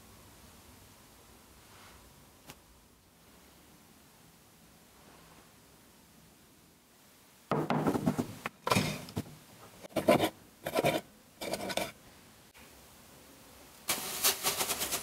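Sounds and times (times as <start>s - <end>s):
plastic lid scraping on glass: 10.0s - 11.9s.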